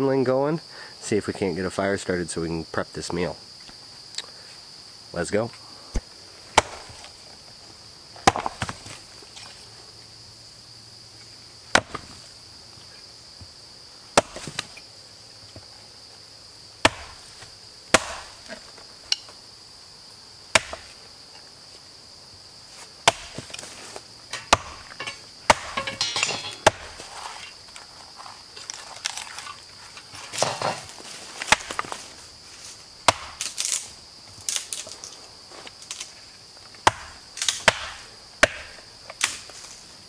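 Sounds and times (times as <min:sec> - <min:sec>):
high buzz of insects: 0:00.0 - 0:40.0
hatchet chopping wood: 0:06.0 - 0:07.0, 0:08.2 - 0:08.8, 0:11.7 - 0:12.1, 0:14.2 - 0:14.8, 0:16.8 - 0:17.2, 0:17.9 - 0:18.5, 0:20.5 - 0:21.0, 0:23.0 - 0:23.6, 0:24.3 - 0:27.0, 0:33.0 - 0:33.7, 0:36.8 - 0:39.4.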